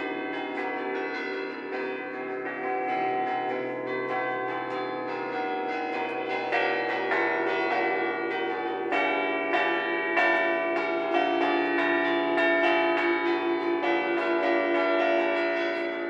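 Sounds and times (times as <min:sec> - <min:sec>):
church bells ringing: 0:00.0 - 0:16.0.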